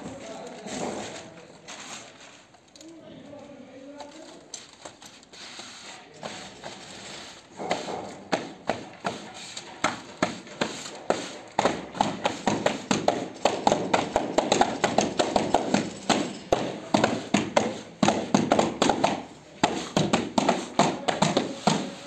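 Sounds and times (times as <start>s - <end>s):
tiling float tapping tiles: 6.2s - 22.0s.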